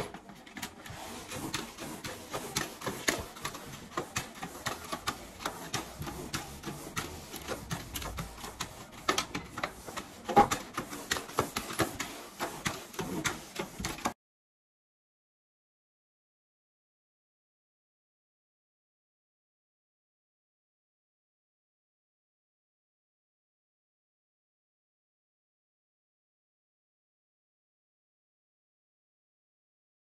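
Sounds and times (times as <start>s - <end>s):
sponge mop scrubbing tile floor: 0.0s - 14.2s.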